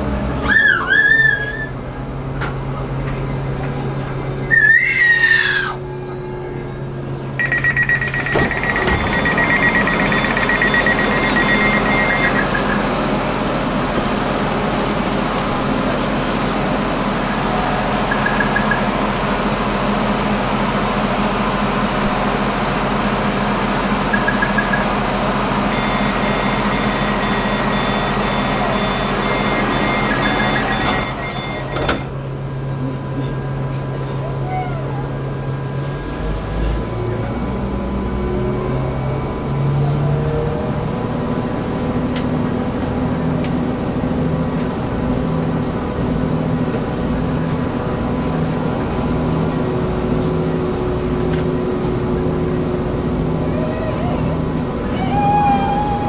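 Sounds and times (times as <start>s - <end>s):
train rumble and rattle: 0.0s - 56.0s
high squeal: 0.4s - 7.0s.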